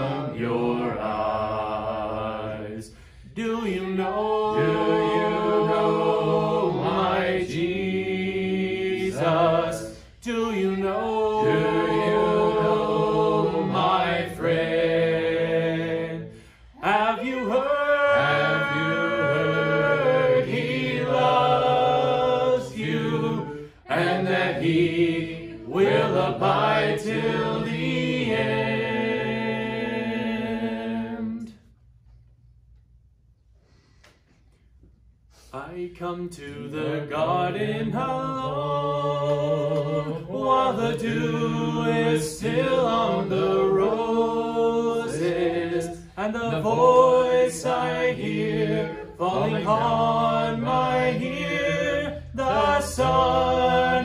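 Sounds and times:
voices singing a hymn: 0.0s - 31.7s, 35.4s - 54.0s.

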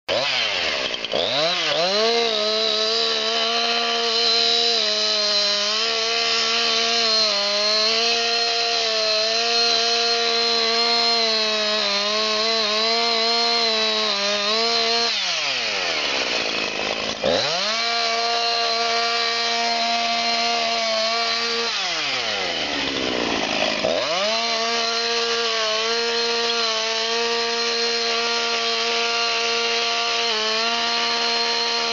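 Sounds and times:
chainsaw cutting tree: 0.1s - 31.9s.

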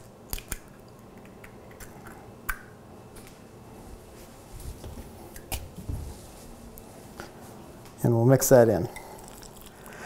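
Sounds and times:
egg shell cracking: 0.0s - 2.8s.

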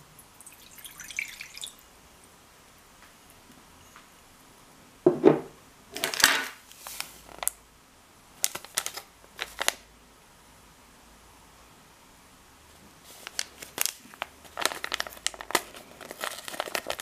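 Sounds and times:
foil sachet crinkling: 6.0s - 7.6s, 8.4s - 9.9s, 13.1s - 17.0s.

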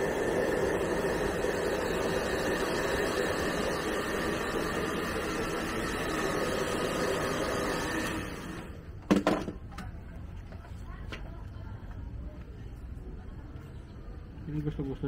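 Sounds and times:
hair dryer blowing: 0.0s - 8.8s.

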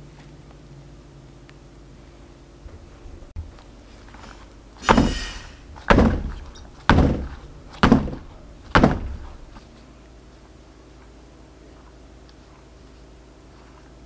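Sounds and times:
mould thudding on worktop: 3.4s - 9.6s.

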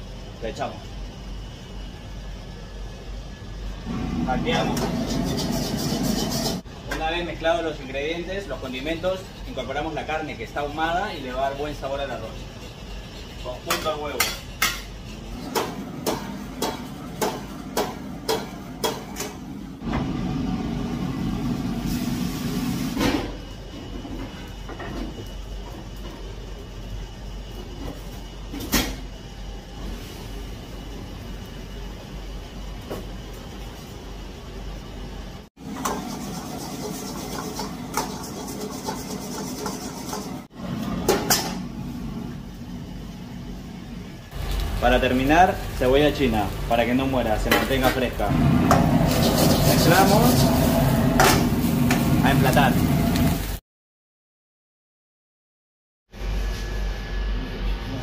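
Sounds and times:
rice frying in a wok: 0.0s - 53.6s
gas burner rushing: 3.0s - 16.7s, 17.6s - 33.5s, 35.5s - 53.6s
sizzling rush from wok: 35.6s - 40.6s, 47.7s - 53.6s.

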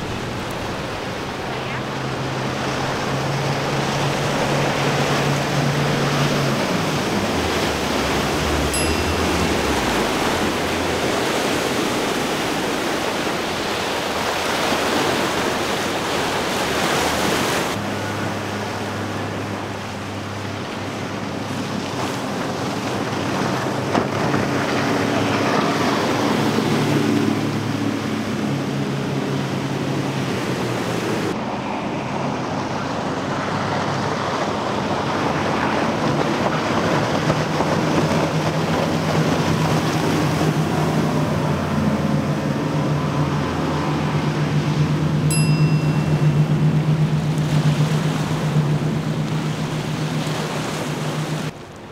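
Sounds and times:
outboard engines droning: 0.0s - 51.9s
rushing water spray and waves: 0.0s - 51.9s.

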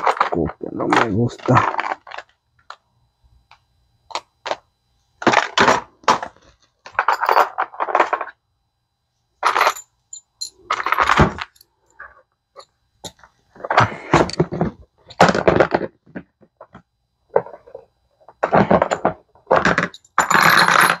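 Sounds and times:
metal tools clinking and rattling: 6.9s - 8.2s, 9.4s - 11.6s, 18.6s - 21.0s.

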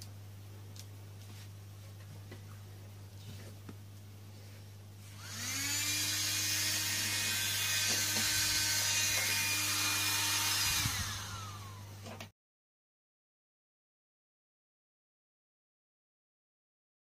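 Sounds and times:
small motor fan whining: 5.0s - 12.3s.

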